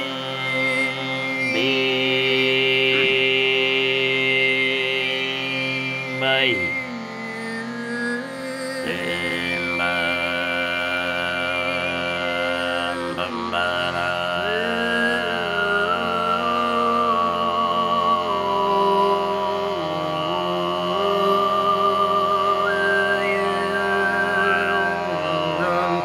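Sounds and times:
male voices singing drone: 0:00.0 - 0:06.9, 0:08.8 - 0:26.0
whistle-like overtone singing: 0:05.9 - 0:11.0, 0:21.0 - 0:26.0.

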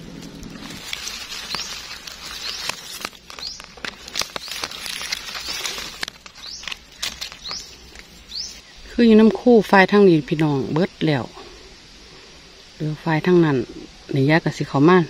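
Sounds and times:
hands rustling through dry leaves: 0:00.0 - 0:11.7
bird rising chirp: 0:00.5 - 0:09.0
sharp snaps and clicks: 0:00.8 - 0:08.5.

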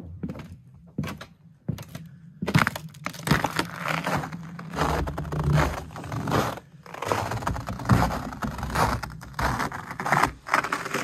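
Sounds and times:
lake ice crackling: 0:02.7 - 0:11.0.

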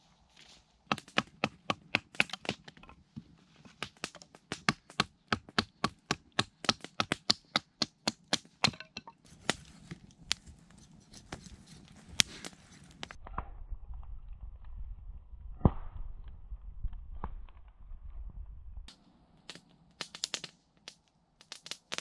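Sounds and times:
campfire crackling: 0:00.0 - 0:13.3, 0:18.9 - 0:22.0.

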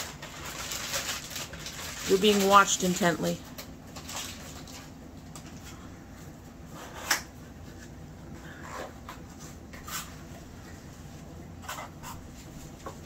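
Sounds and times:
cardboard packaging rustling: 0:00.0 - 0:05.6
steady low hum: 0:00.0 - 0:13.0.

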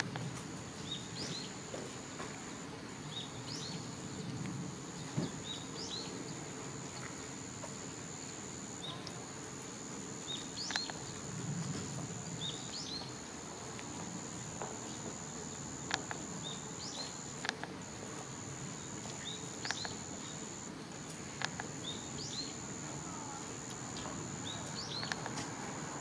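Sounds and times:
insect high-pitched trill: 0:14.2 - 0:20.7.

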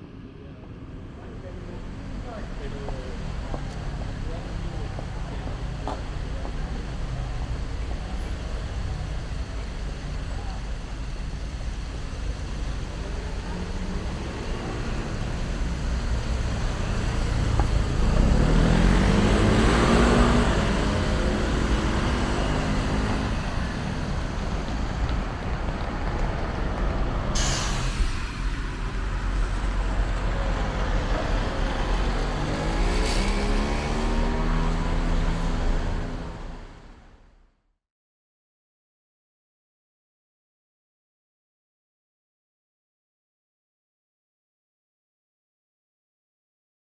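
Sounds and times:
car and bus engines passing: 0:00.0 - 0:37.6
bus air brakes hissing: 0:27.3 - 0:30.0.

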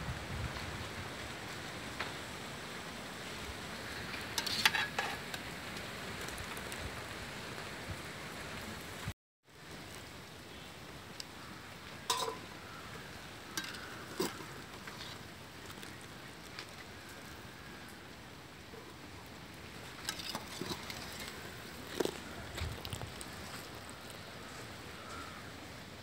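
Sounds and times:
water boiling in a pot: 0:00.2 - 0:26.0.

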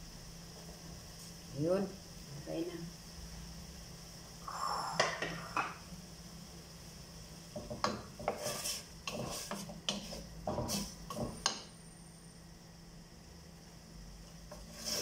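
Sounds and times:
spoon knocking against pot: 0:07.6 - 0:08.4
wooden spoon scraping metal pot: 0:07.8 - 0:11.5, 0:14.5 - 0:15.0.

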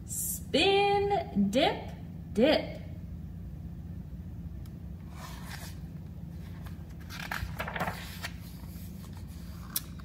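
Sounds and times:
steady low hum: 0:00.0 - 0:10.0
book page turning: 0:05.1 - 0:10.0.

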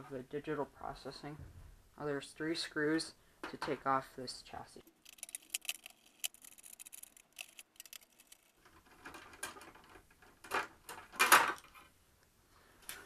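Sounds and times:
metal parts scraping and knocking: 0:05.0 - 0:11.9
screwdriver ticking and clicking: 0:05.1 - 0:08.5.

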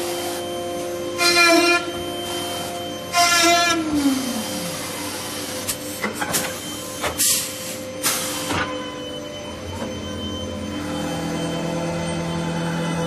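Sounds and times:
machine hum: 0:00.0 - 0:08.0, 0:08.7 - 0:13.0
falling whine: 0:07.7 - 0:13.0.

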